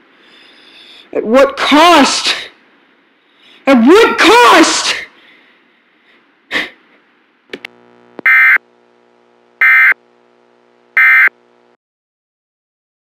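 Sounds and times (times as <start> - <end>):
faint buzzing hum: 5.2 - 11.8
screechy digital data bursts: 9.6 - 10.0.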